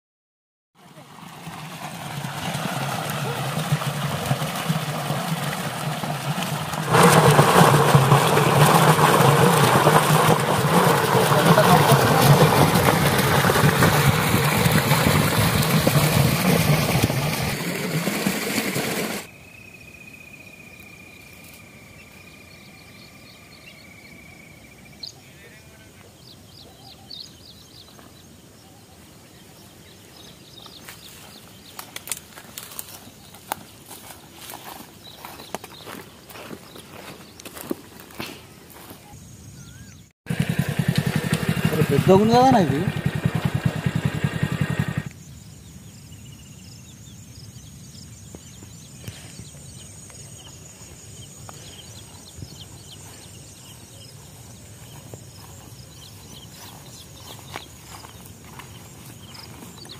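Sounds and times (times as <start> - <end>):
motorcycle engine running: 0.8 - 19.3, 40.3 - 45.1
small bird chirping: 19.3 - 37.7, 38.7 - 40.1, 44.6 - 59.9
footsteps crunching on dry grass: 30.1 - 39.3, 50.9 - 59.9
twigs crackling: 30.8 - 39.0.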